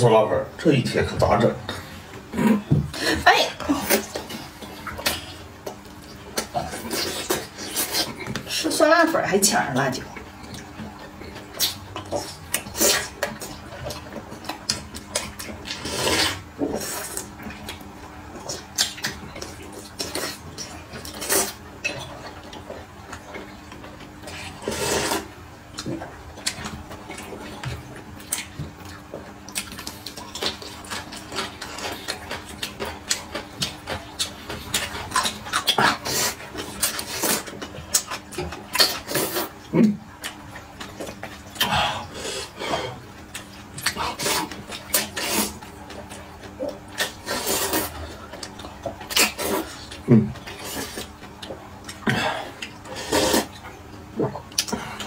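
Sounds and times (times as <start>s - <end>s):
chewing: 3.7s - 8.6s, 10.1s - 55.0s
slurping noodles and soup: 15.7s - 17.3s, 24.3s - 25.3s, 38.8s - 39.6s, 43.9s - 45.6s, 47.0s - 48.0s, 52.1s - 53.6s.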